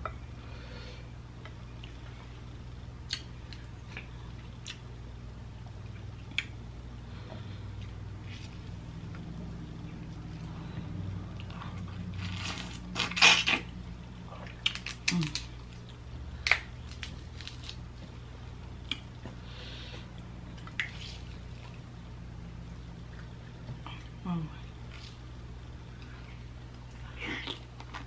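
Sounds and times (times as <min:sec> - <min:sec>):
low hum: 0:00.0 - 0:28.0
person chewing: 0:03.0 - 0:04.9.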